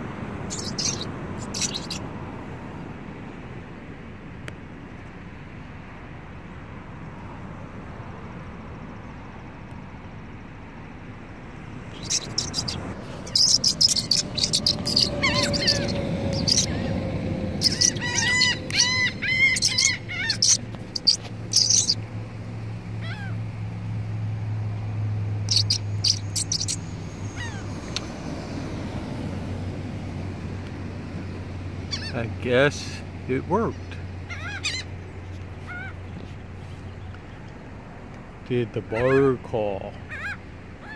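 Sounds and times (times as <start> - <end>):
gulls calling: 0.0 - 2.1, 11.9 - 22.3, 22.9 - 23.5, 25.4 - 28.1, 31.0 - 36.4, 38.7 - 40.9
steady low hum: 9.9 - 38.5.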